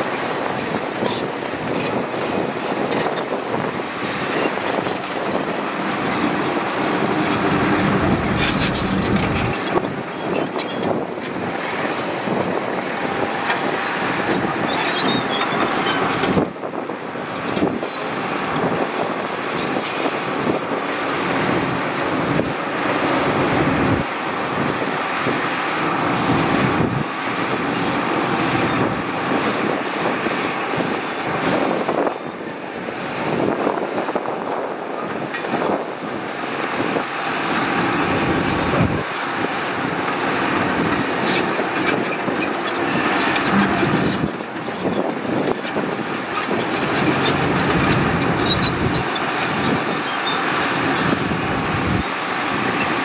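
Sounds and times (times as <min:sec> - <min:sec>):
diesel engine under load: 0:00.0 - 0:53.0
steel tracks clattering: 0:03.8 - 0:12.4, 0:37.0 - 0:53.0.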